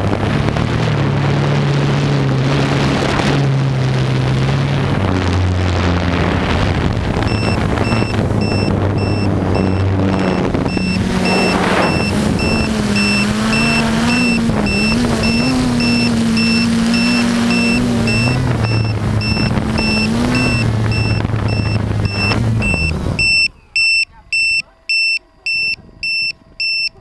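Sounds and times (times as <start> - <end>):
quadcopter propellers buzzing: 0.0 - 27.0
high electronic beeper: 7.3 - 27.0.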